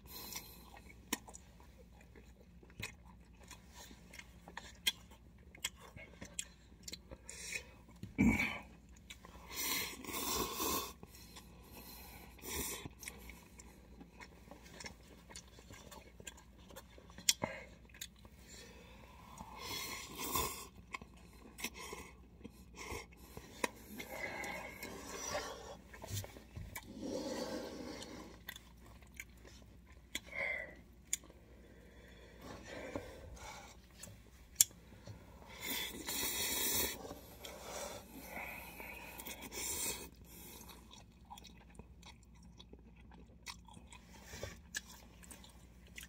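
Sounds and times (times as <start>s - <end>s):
noodles slurped and chewed: 35.4s - 46.0s.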